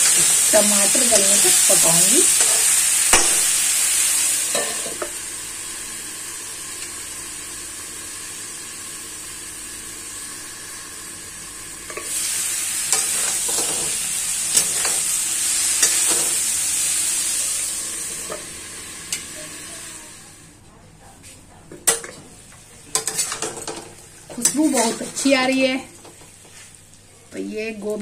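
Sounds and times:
vegetables sizzling in a pan: 0.0 - 20.4, 21.9 - 28.0
metal spatula scraping a pan: 12.9 - 15.0, 22.9 - 23.8, 24.4 - 25.8.

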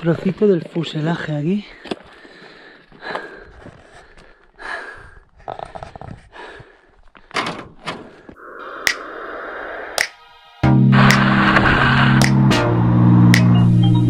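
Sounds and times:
footsteps crunching on stony ground: 0.0 - 4.6, 5.3 - 7.4.

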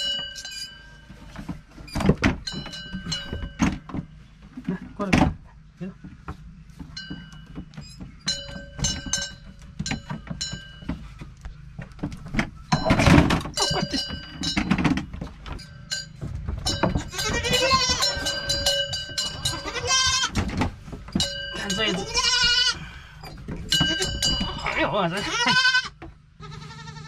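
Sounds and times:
goat bell clanking: 0.0 - 1.4, 2.4 - 3.9, 6.9 - 11.3, 12.7 - 20.4, 21.1 - 25.9
scattered knocks: 11.8 - 21.4
goats bleating: 17.0 - 18.6, 19.4 - 20.4, 21.6 - 27.0.

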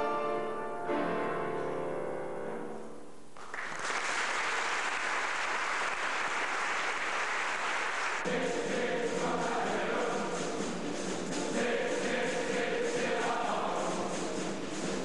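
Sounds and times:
audience applause: 3.4 - 8.3
choir singing with piano: 8.2 - 15.0.

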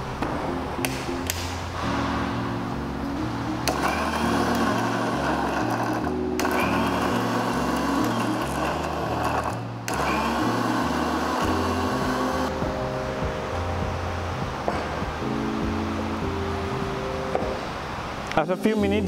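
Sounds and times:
background music: 0.0 - 19.0
mixer grinder running: 3.6 - 12.6.

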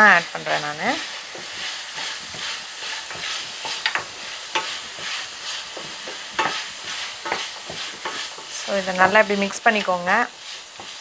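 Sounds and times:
meat sizzling in a pan: 0.0 - 11.0
spoon scraping and knocking on pan: 0.3 - 11.0.

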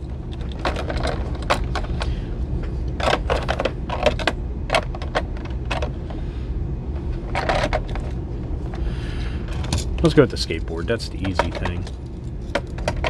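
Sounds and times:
steady low hum: 0.0 - 13.0
hard plastic clicking and rattling: 0.3 - 2.1, 2.9 - 6.0, 11.1 - 13.0.

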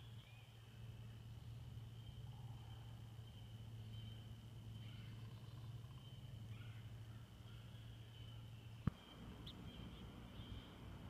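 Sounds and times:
bird chirp: 0.0 - 11.0
low hum: 0.0 - 11.0.

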